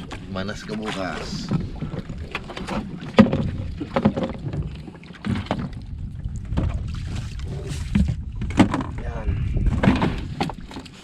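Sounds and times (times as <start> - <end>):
water against boat hull: 0.0 - 11.0
fishing gear knocking on boat: 0.8 - 5.8, 7.9 - 10.8.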